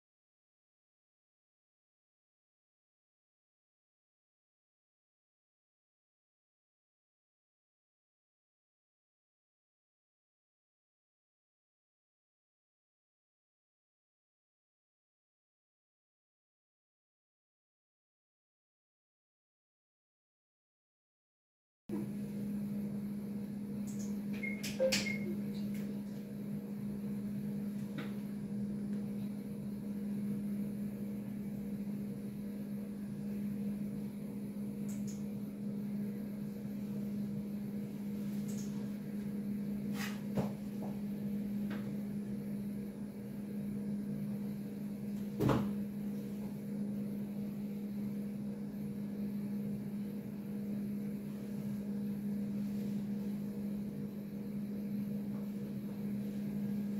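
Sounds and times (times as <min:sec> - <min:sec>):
low electrical hum: 0:21.9 - 0:56.9.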